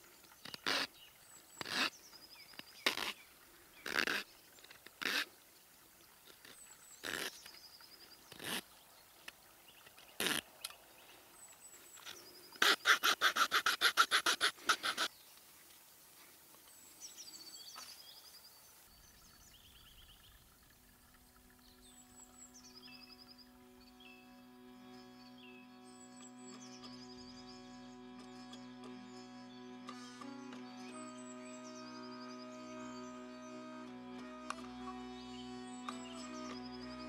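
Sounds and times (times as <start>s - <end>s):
knife cutting wood: 0.4s - 0.9s, 1.6s - 2.0s, 2.6s - 3.2s, 3.8s - 5.3s, 7.0s - 7.4s, 8.3s - 8.7s, 10.2s - 10.5s, 12.6s - 15.1s
birds chirping: 16.7s - 37.0s
soft music: 20.6s - 37.0s.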